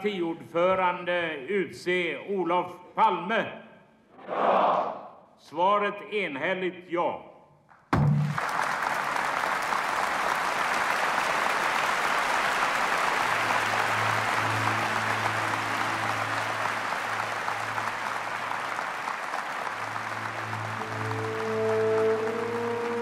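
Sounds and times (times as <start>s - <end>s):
audience applauding: 8.1s - 23.0s
low sustained music notes: 13.3s - 23.0s.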